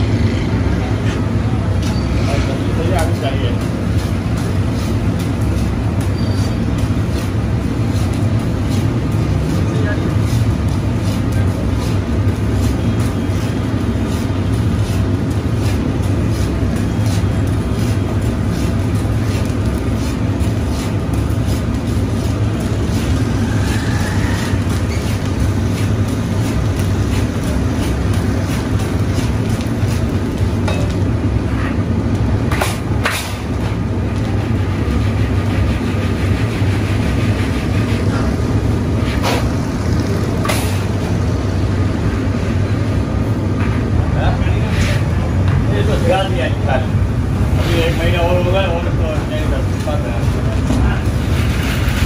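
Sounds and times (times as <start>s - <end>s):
low furnace roar: 0.0s - 52.0s.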